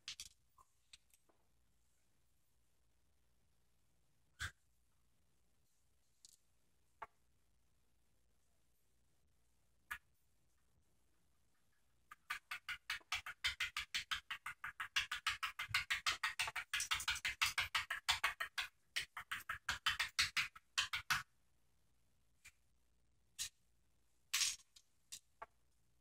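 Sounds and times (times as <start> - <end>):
plastic pieces clicking and clattering: 0.0 - 1.2, 24.3 - 25.3.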